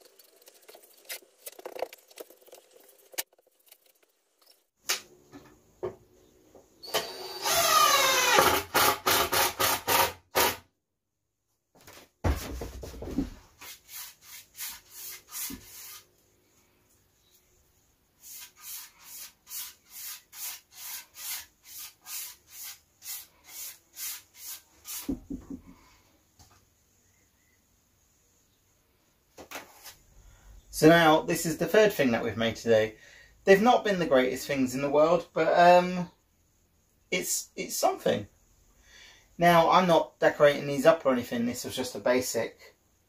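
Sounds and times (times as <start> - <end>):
hand-sanding wood: 13.6 - 16.1, 18.2 - 25.2.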